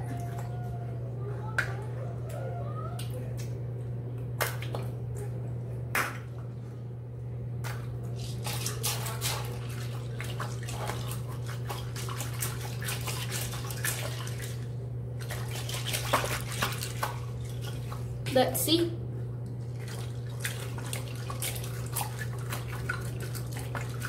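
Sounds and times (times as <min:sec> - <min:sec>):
steady low hum: 0:00.0 - 0:24.0
wet squelches and clicks: 0:01.6 - 0:03.6, 0:04.2 - 0:05.3, 0:19.4 - 0:24.0.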